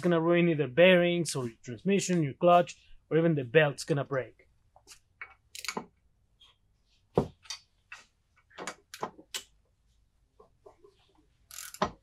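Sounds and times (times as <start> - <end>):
ratchet clicking: 11.5 - 11.9.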